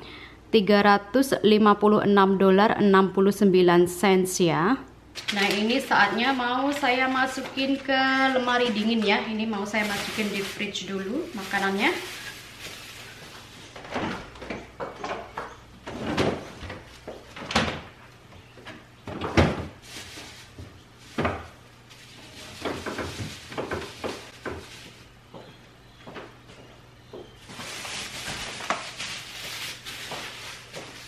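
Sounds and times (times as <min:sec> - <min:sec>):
refrigerator hum: 0:00.0 - 0:31.0
plastic rustling: 0:05.2 - 0:14.6, 0:19.1 - 0:25.2, 0:27.4 - 0:31.0.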